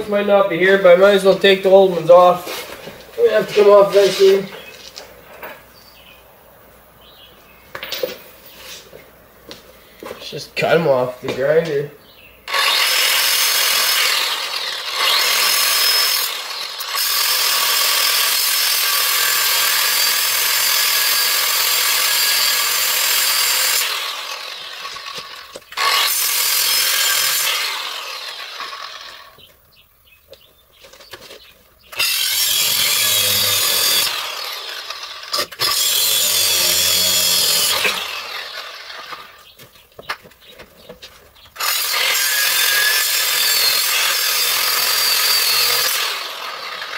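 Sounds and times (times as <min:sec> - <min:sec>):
angle grinder cutting steel: 0:12.5 - 0:29.5, 0:31.9 - 0:39.5, 0:41.6 - 0:46.9.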